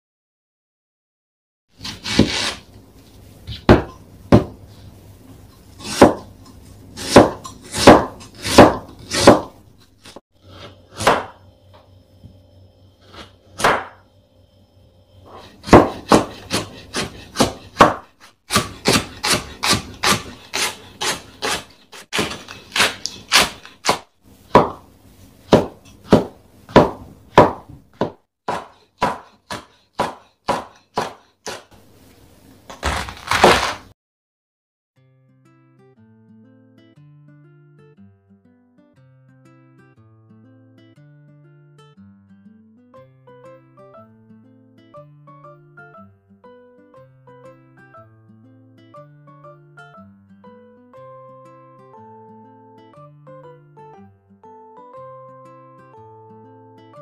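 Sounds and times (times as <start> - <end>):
knife chopping on wooden board: 1.8 - 2.6, 3.5 - 4.6, 5.8 - 6.4, 7.0 - 11.4, 13.1 - 14.0, 15.3 - 24.9, 25.5 - 31.8, 32.7 - 33.9.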